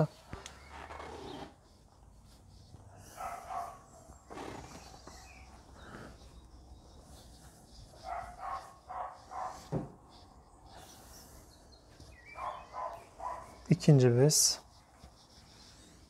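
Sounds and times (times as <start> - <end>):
dog barking: 3.2 - 3.8, 8.0 - 9.8, 12.3 - 13.6.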